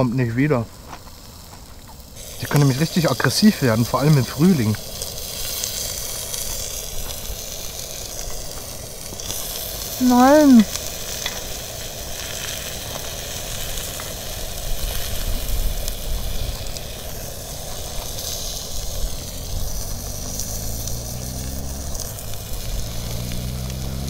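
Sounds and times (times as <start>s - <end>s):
food sizzling on griddle: 0.0s - 24.0s
low motor hum: 16.3s - 24.0s.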